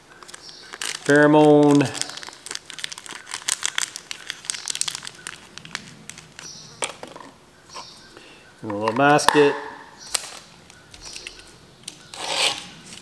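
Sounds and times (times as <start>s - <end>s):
plastic packet crinkling: 0.1s - 7.2s.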